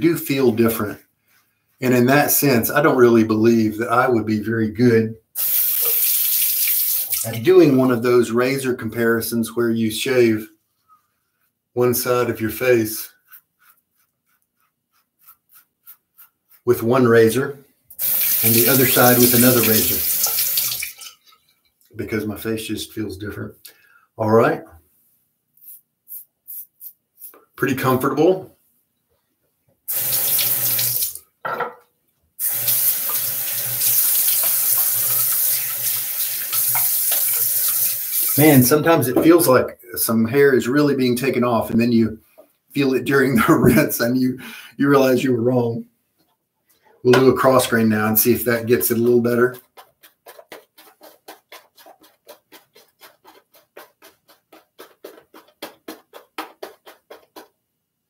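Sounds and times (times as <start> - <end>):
sink tap running: 5.4 - 7.4, 17.9 - 21.1, 29.9 - 31.2, 32.4 - 38.5
razor scraping stubble: 48.5 - 57.5.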